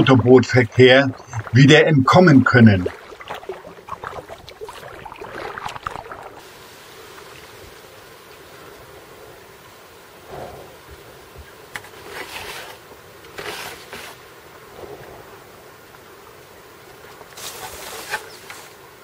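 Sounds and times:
kayak paddle splashing water: 0.0s - 7.6s.

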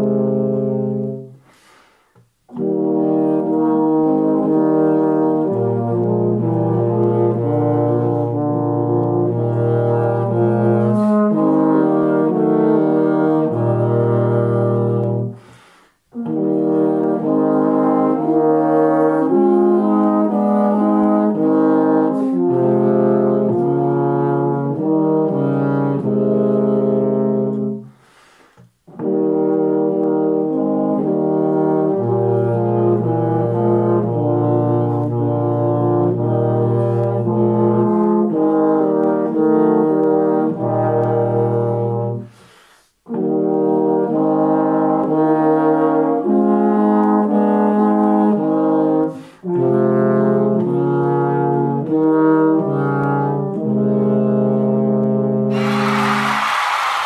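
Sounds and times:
brass trio playing in harmony: 0.0s - 1.8s, 2.4s - 28.2s, 28.8s - 57.0s.

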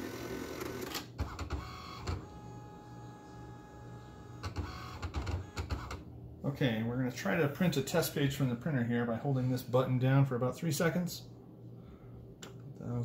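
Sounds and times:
printer motor whine: 0.0s - 6.0s
printer mechanical clicks and knocks: 4.4s - 6.0s.

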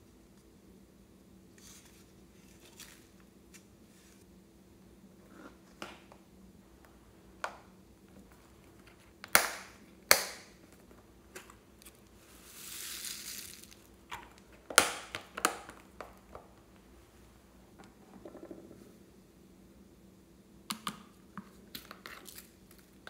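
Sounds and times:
soft rustling scrape: 1.6s - 4.3s.

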